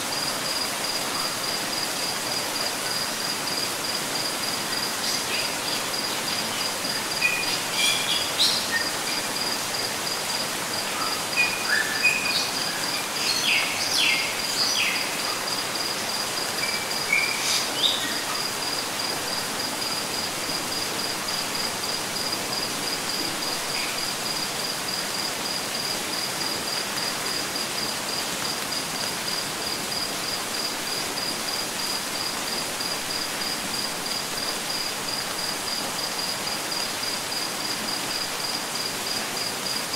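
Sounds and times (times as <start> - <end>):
falling rain hiss: 0.0 - 39.9
insect chirping: 0.0 - 39.9.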